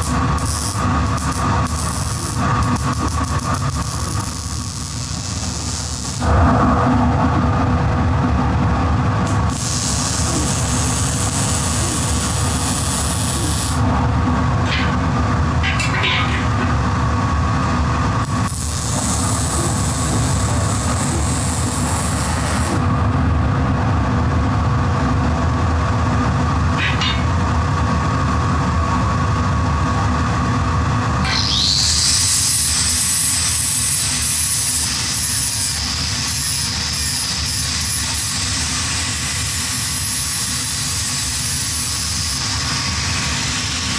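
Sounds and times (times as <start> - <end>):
welding arc hissing: 0.0 - 6.4, 9.2 - 13.9, 18.2 - 22.8, 31.2 - 43.9
steady machine hum: 0.0 - 43.9.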